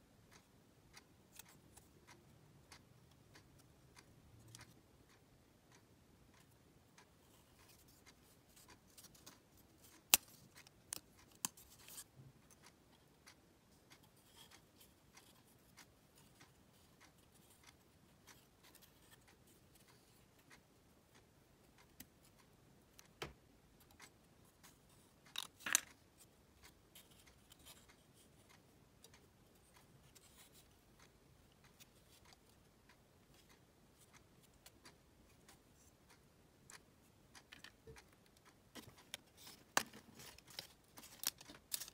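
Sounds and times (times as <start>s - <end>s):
wooden puzzle pieces clicking: 25.3s - 26.0s, 37.4s - 41.9s.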